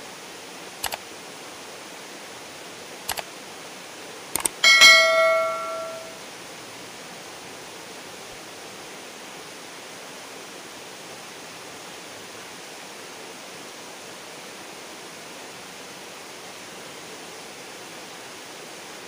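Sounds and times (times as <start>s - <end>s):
stream water rushing: 0.0s - 19.0s.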